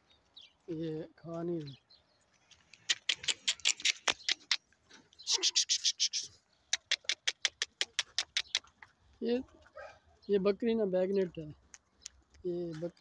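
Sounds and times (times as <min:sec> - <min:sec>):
rapid sharp ticks: 0:02.7 - 0:04.6, 0:05.7 - 0:08.9.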